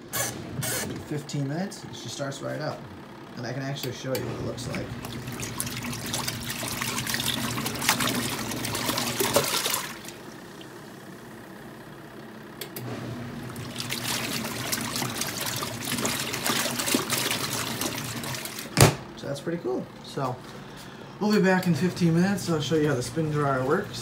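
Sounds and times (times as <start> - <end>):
washing machine motor hum: 0.0 - 24.0
water and clothes sloshing: 4.7 - 10.3, 13.4 - 18.7.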